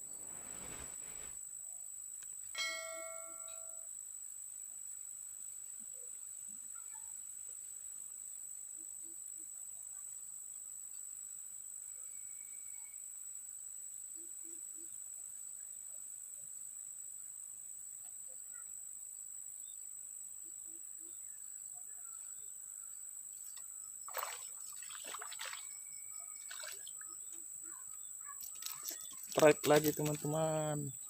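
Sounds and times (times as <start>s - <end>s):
insects chirring: 0.0s - 31.0s
water splashing and rustling: 0.1s - 1.4s, 24.1s - 27.1s, 28.4s - 30.5s.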